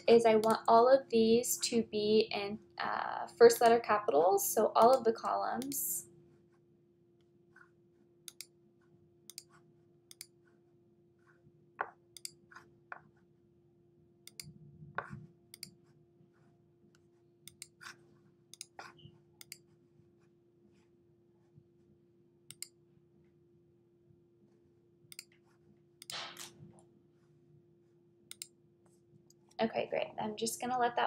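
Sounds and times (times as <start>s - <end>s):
faint steady hum: 0.0s - 31.0s
computer mouse clicks: 0.4s - 0.7s, 4.8s - 5.0s, 8.3s - 8.5s, 9.3s - 10.4s, 12.2s - 12.7s, 14.2s - 15.8s, 17.4s - 19.6s, 22.5s - 22.8s, 25.1s - 25.4s, 28.3s - 28.6s.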